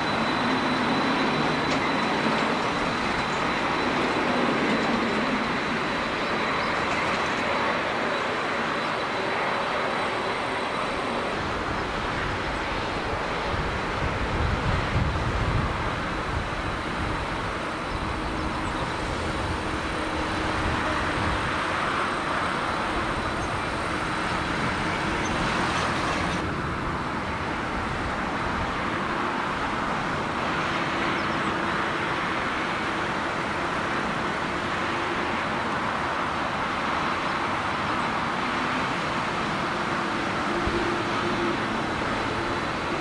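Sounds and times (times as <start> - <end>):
thin high whine: 0.0 - 13.6
jet engines humming: 0.0 - 43.0.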